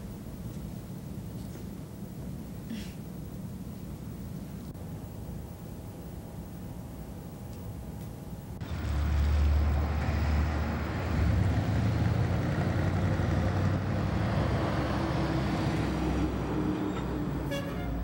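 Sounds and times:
street ambience rumble and hiss: 0.0 - 18.0.

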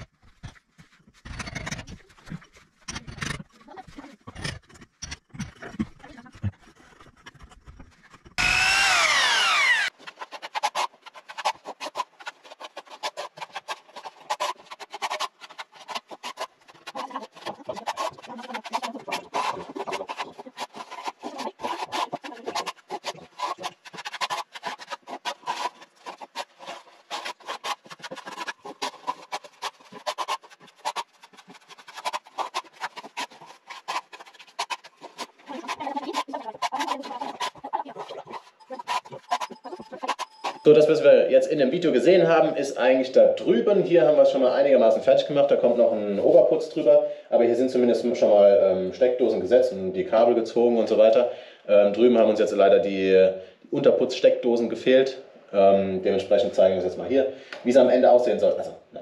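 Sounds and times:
knocking and scraping on concrete: 0.0 - 8.6, 9.9 - 40.9
rapid rasping strokes: 0.0 - 48.4
power drill whining: 8.4 - 9.9.

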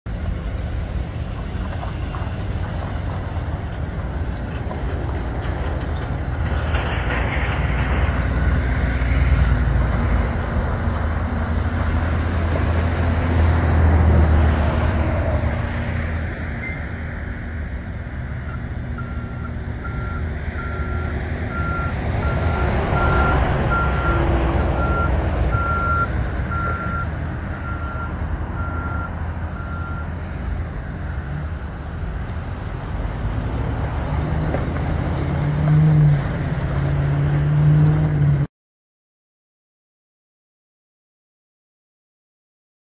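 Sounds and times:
truck engine driving on gravel: 0.1 - 16.4, 31.3 - 38.3.

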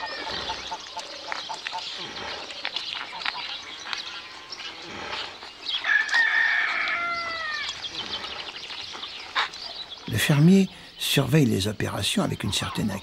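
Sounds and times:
rooster crowing: 5.8 - 7.7.

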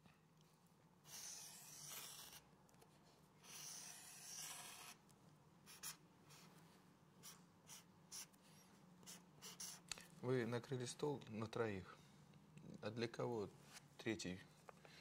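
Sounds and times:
marker drawing on paper: 1.0 - 2.4, 3.4 - 5.0, 5.6 - 6.6, 7.2 - 9.9.

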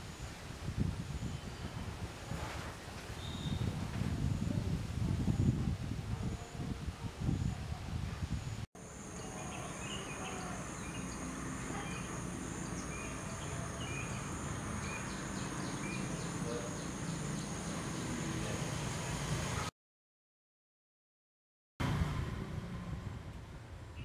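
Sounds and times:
high-pitched insect drone: 8.8 - 19.2.

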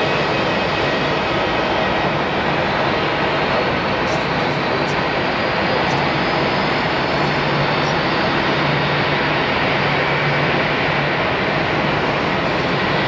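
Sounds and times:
high engine whine: 0.0 - 13.0
jet engines rushing: 0.0 - 13.0.

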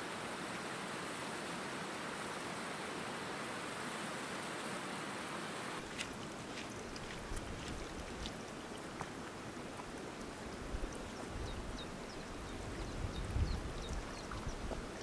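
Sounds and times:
water trickling and lapping: 5.8 - 15.0
water drips: 5.9 - 11.3
wind on microphone: 10.6 - 15.0.

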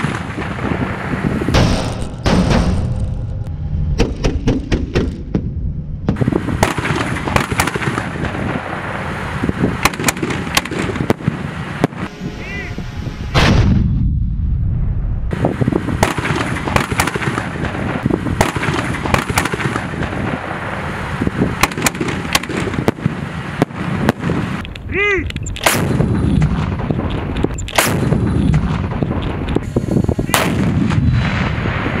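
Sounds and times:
fireworks bursting and crackling: 0.0 - 3.0, 6.1 - 12.7, 15.3 - 32.0
guns firing salute volleys: 6.1 - 12.1, 15.3 - 24.6, 25.2 - 32.0.

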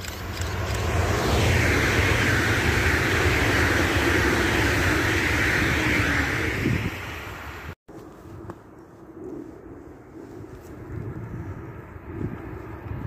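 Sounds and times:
high-speed train passing: 0.0 - 7.8.

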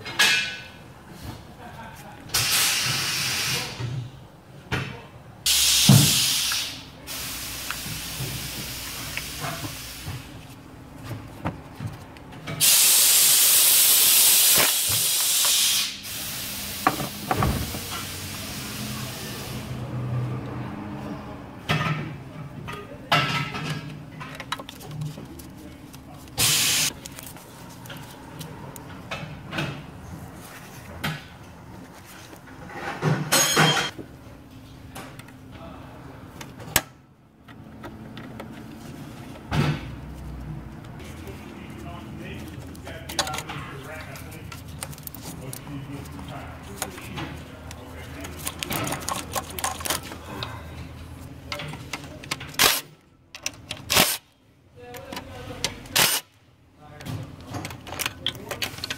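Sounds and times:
pneumatic air ratchet bursts: 2.4 - 3.8, 5.5 - 7.8, 12.6 - 16.8, 26.4 - 26.9, 53.9 - 54.2, 55.9 - 56.3.

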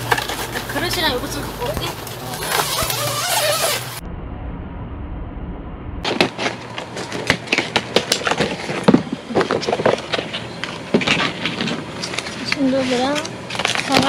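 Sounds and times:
muffled low rumble: 3.9 - 6.2.

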